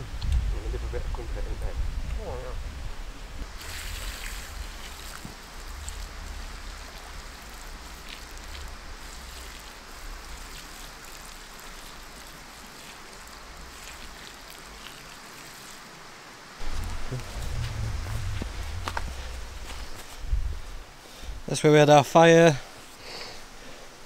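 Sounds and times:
water pouring onto embers: 3.4s - 20.8s
sudden loud rumble: 16.6s - 20.8s.

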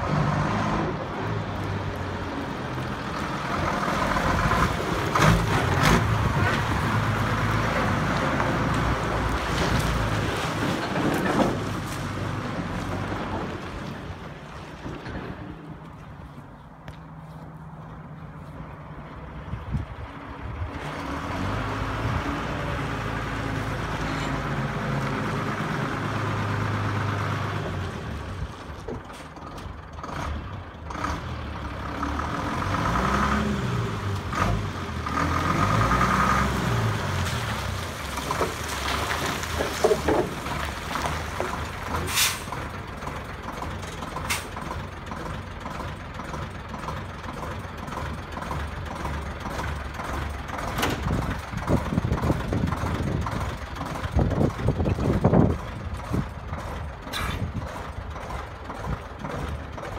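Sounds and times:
diesel lorry engine revving: 0.0s - 16.3s, 17.6s - 59.9s
short sharp hiss: 42.1s - 42.5s.

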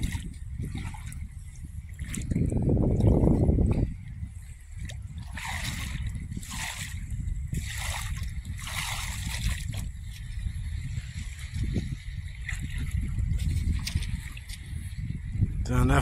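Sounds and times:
seawater splashing: 0.0s - 3.5s, 4.6s - 10.3s
steady low rumble: 0.0s - 16.0s.

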